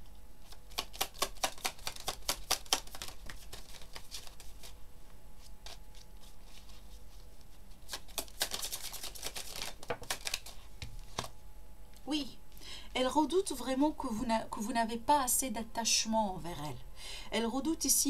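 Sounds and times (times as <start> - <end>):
cards shuffling flicks: 0.4 - 4.8, 5.4 - 11.4
papery rustle of cards: 0.4 - 11.4.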